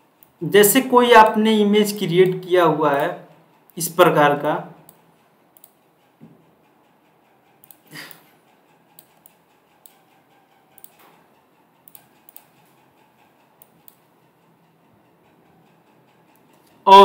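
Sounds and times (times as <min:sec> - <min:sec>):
computer mouse clicks: 0:05.6 - 0:05.8, 0:07.6 - 0:11.2, 0:11.8 - 0:14.1.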